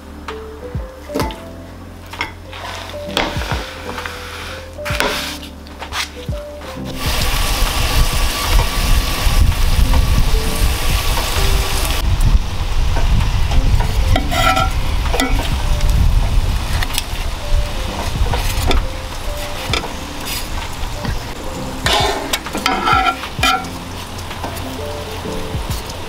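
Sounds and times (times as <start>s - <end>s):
sausages sizzling on grill: 6.8s - 26.0s.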